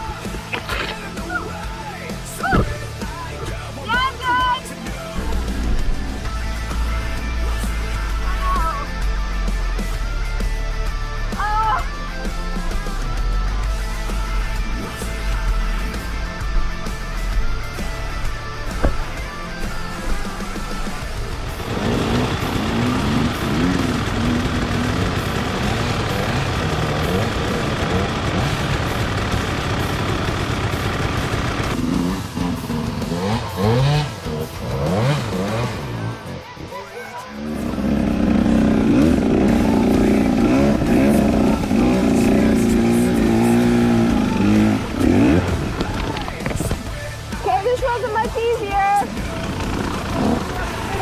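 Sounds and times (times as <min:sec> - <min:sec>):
dirt bike engines revving: 0:00.0 - 0:51.0.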